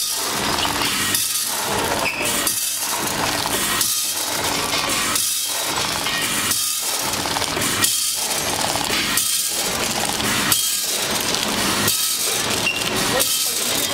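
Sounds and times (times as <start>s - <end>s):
packing machine clattering: 0.0s - 13.9s.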